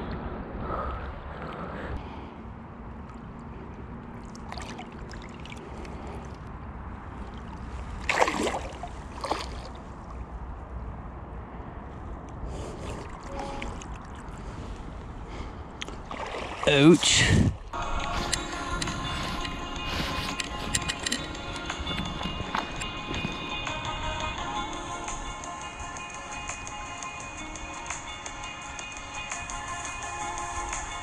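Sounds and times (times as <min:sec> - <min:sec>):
wind rumble on microphone: 0:00.0 - 0:04.2, 0:17.1 - 0:24.6
river water sloshing and flowing: 0:02.2 - 0:11.5, 0:12.2 - 0:27.3
water splash: 0:04.2 - 0:06.1, 0:07.3 - 0:09.8, 0:15.9 - 0:17.7.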